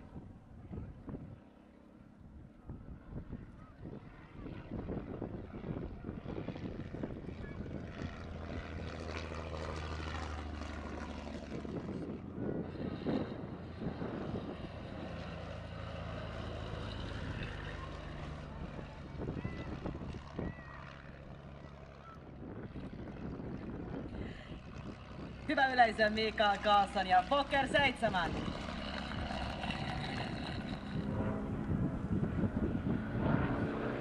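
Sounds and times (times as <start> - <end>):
propeller plane engine passing: 0.0 - 34.0
wind noise on microphone: 2.6 - 9.6, 10.9 - 15.4, 18.6 - 20.6, 22.3 - 25.5, 27.7 - 34.0.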